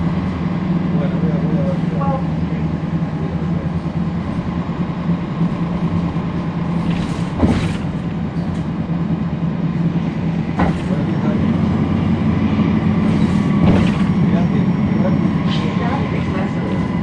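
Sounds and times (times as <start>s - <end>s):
bus diesel engine droning: 0.0s - 17.0s.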